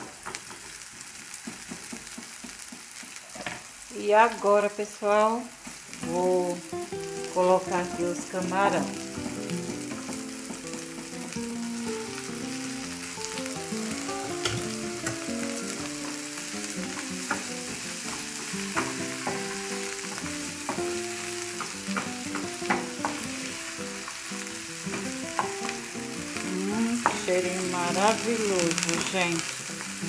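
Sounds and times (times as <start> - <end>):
shrimp sizzling in frying pan: 0.0 - 30.0
wooden spoon knocking pan: 1.4 - 3.2, 16.9 - 21.0, 21.6 - 23.2, 26.9 - 29.2.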